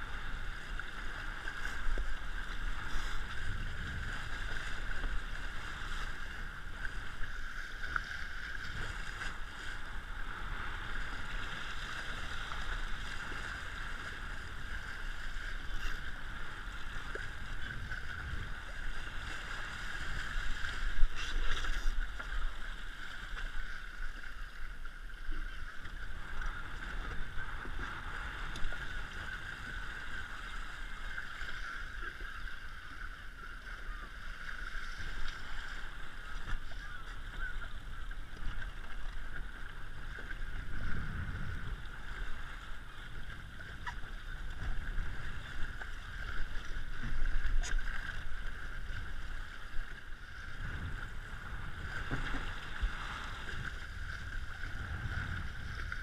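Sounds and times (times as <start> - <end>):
water rushing along boat hull: 0.0 - 56.0
wind rumble on microphone: 0.0 - 56.0.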